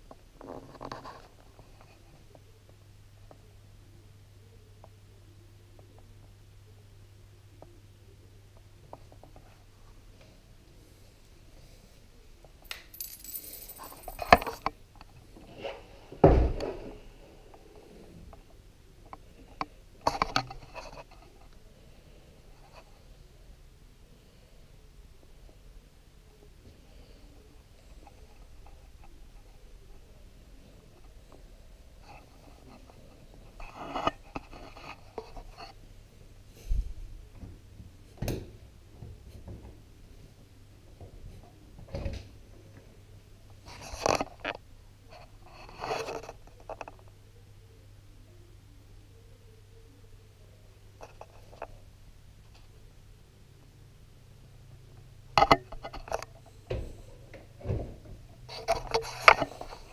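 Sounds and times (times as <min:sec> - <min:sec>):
coins rattling through coin mechanism: 0:12.9 - 0:14.6.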